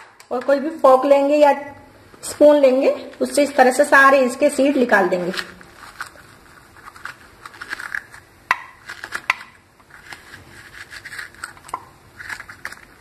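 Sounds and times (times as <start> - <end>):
metal spoon scraping seeds: 9.9 - 12.9.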